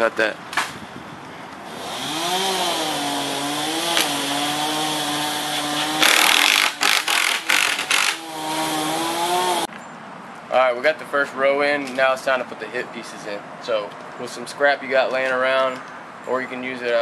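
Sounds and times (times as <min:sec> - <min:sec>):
harsh drill bursts: 0:01.8 - 0:09.6.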